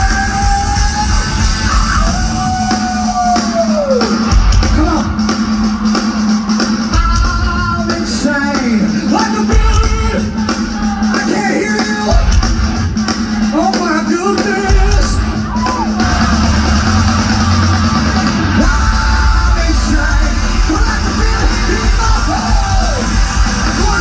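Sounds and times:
heavy rock band playing: 0.0 - 24.0
singer holding long notes: 15.7 - 24.0.

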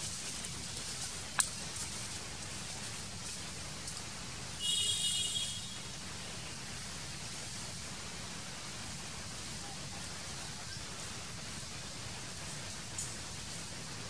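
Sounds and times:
outdoor background hiss: 0.0 - 14.0.

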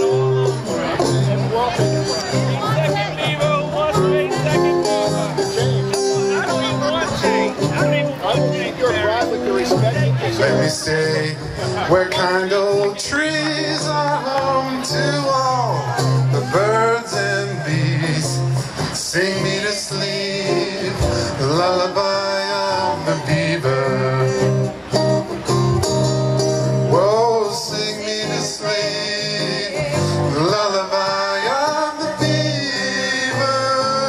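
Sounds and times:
guitar accompaniment: 0.0 - 34.0
man singing: 6.5 - 24.9, 26.8 - 34.0.

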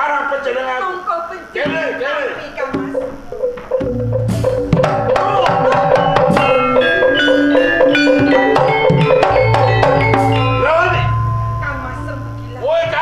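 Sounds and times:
ringing metallophone notes: 2.7 - 13.0
hand drum strokes: 2.8 - 11.0.

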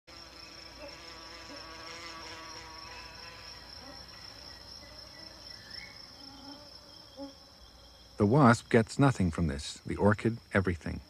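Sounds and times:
wasp wings buzzing: 0.1 - 8.2
high-pitched insect trill: 0.1 - 11.0.

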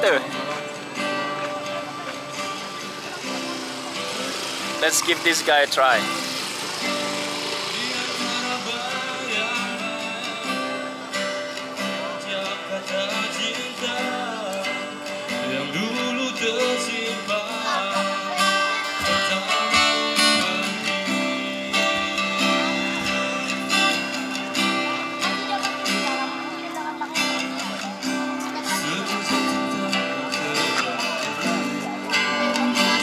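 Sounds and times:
live band playing amplified music: 0.0 - 33.0
person singing: 12.0 - 21.9, 24.9 - 33.0.

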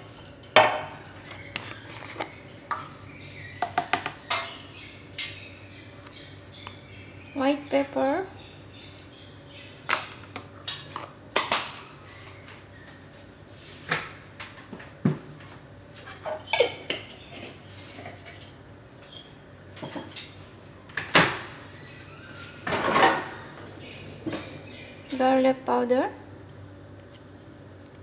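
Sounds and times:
kitchen utensils clattering: 0.0 - 1.4, 3.6 - 4.6, 16.0 - 20.3, 22.6 - 23.6.

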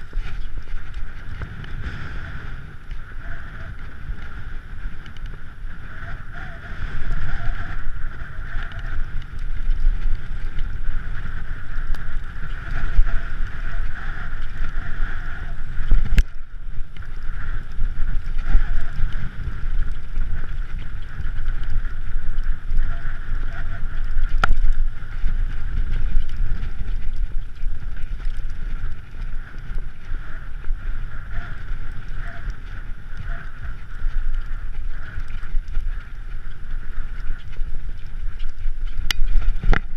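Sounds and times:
low rumble over rocky track: 0.0 - 39.9
wind buffeting microphone: 0.0 - 39.9.

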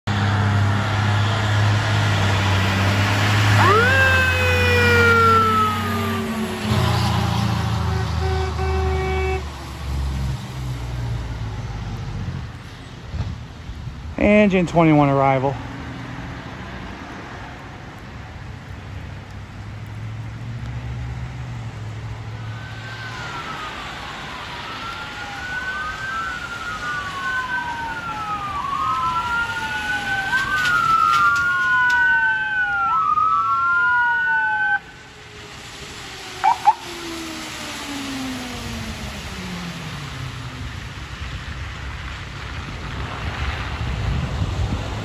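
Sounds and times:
siren wailing: 3.2 - 9.4, 22.3 - 40.4
short siren chirps: 36.2 - 38.5.

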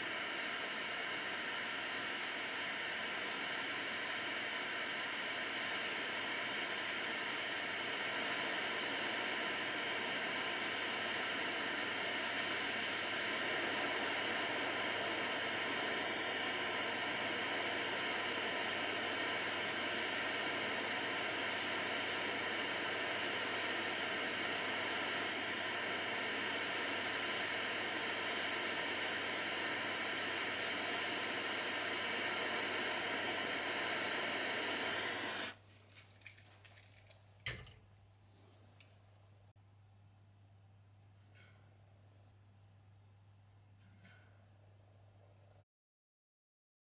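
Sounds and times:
soldering flame hissing: 0.0 - 35.6.

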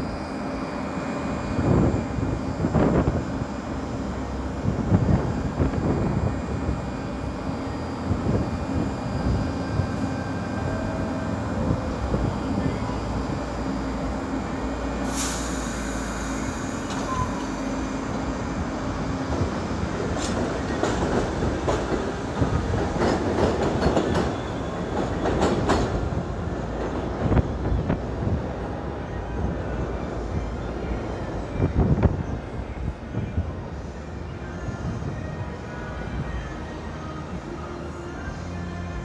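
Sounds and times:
subway train rumbling: 0.0 - 39.0.

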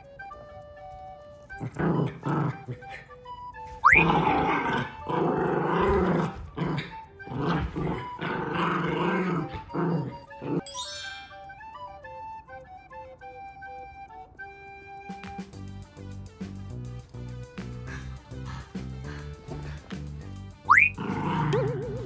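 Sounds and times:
light background music: 0.0 - 22.0
dog growling: 1.6 - 3.1, 3.9 - 10.6, 20.7 - 22.0.

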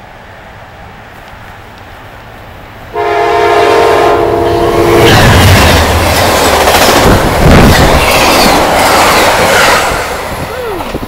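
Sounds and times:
train passing with wheel clatter: 0.0 - 11.0
train air horn blast: 2.9 - 5.5.

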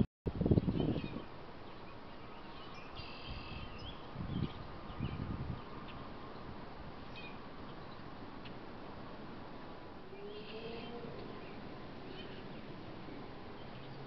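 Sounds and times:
microphone hiss: 0.3 - 14.0
faint high bird chirps: 0.4 - 6.1, 10.1 - 12.7.

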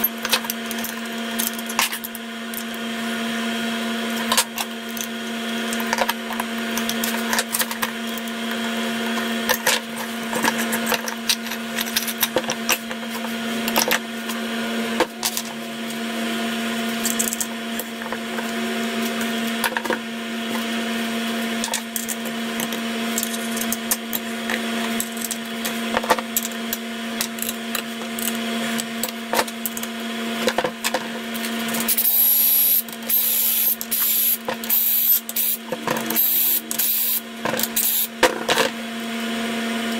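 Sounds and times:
metal parts clinking and tapping: 17.0 - 17.5, 21.6 - 24.2, 24.9 - 26.6
steady hum: 30.4 - 38.8
cordless drill whining: 36.2 - 37.2.

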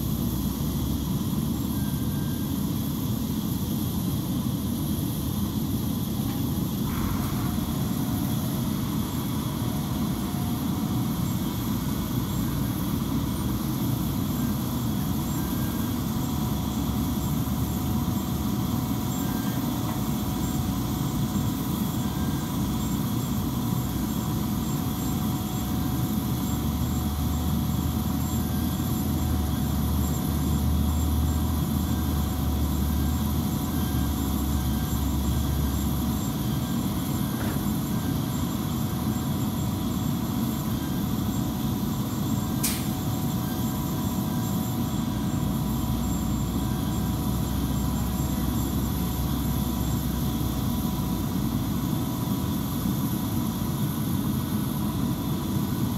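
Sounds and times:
faint whining tones: 0.0 - 55.8
short sharp click: 42.6 - 42.9.

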